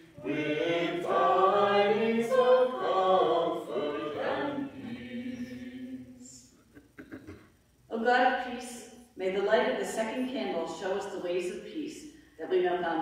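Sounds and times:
voices singing a hymn: 0.0s - 6.6s.

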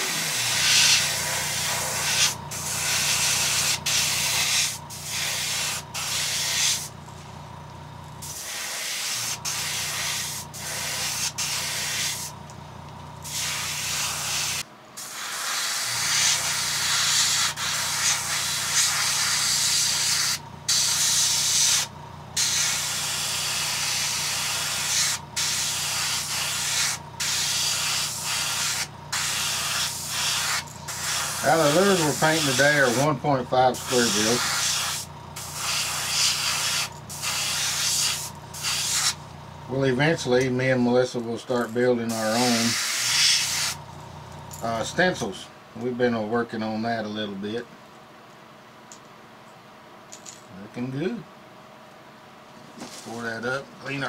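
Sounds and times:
airbrush spraying hiss: 0.0s - 6.9s, 8.2s - 12.3s, 13.2s - 33.1s, 33.7s - 39.2s, 42.1s - 43.8s.

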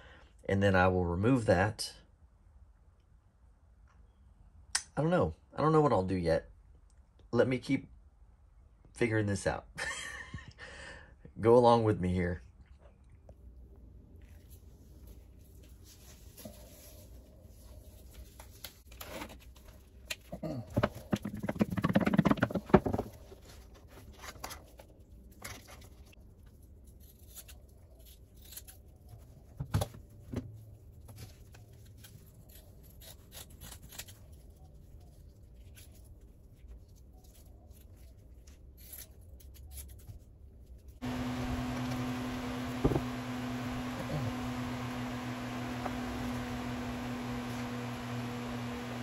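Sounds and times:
fiberglass mat tearing: 26.8s - 29.1s, 31.3s - 34.4s.

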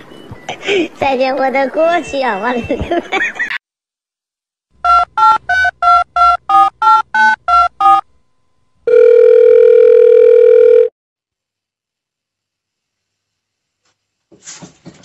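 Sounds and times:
steady phone tone: 4.8s - 8.0s, 8.8s - 10.9s.

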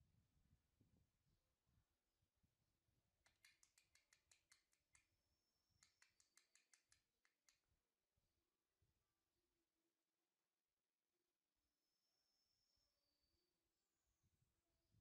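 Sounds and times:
quick sharp clicks: 3.3s - 5.1s, 5.8s - 7.6s.

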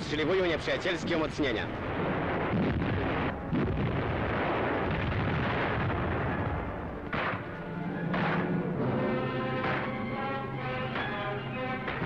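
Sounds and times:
artillery gunfire rumble: 1.8s - 8.7s.

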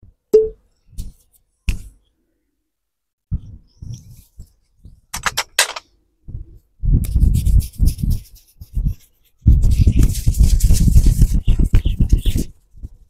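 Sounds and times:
fingers rubbing through hair: 6.9s - 13.0s.

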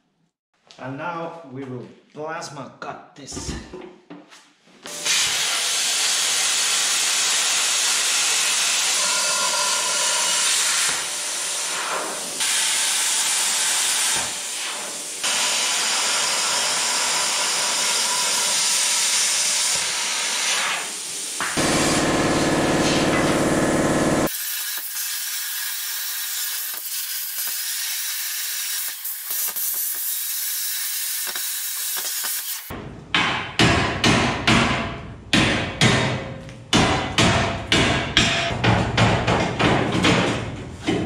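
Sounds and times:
plasma cutter hissing: 5.0s - 32.7s.

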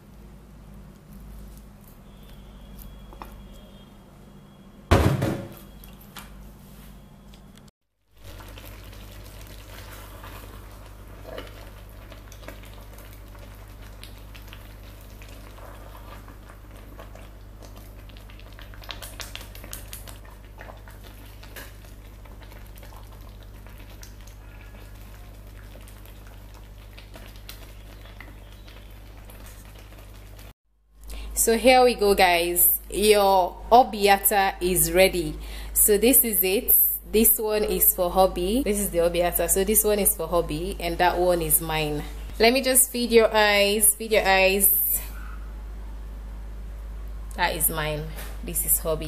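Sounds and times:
crockery knock: 4.9s - 5.5s
sauce simmering with bubbling pops: 8.0s - 31.3s.

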